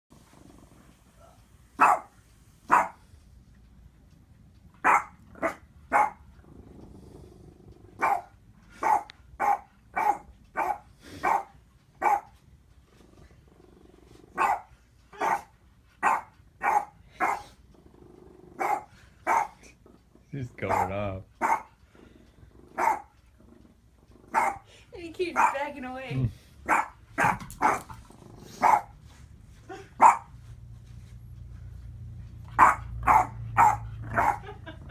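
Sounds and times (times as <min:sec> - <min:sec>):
dog barking: 0:01.2 - 0:03.0, 0:04.8 - 0:06.2, 0:08.0 - 0:12.3, 0:14.4 - 0:17.6, 0:18.6 - 0:19.6, 0:20.6 - 0:21.7, 0:22.8 - 0:23.1, 0:24.3 - 0:24.6, 0:25.4 - 0:25.7, 0:26.6 - 0:27.9, 0:28.6 - 0:28.9, 0:30.0 - 0:30.3, 0:32.6 - 0:34.6.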